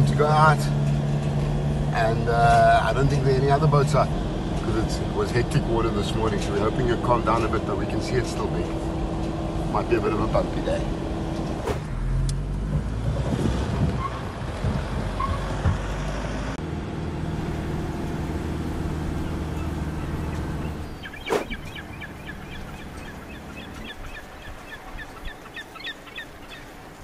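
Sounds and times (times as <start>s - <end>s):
car engine and road noise: 0.0s - 27.0s
birds chirping: 17.3s - 27.0s.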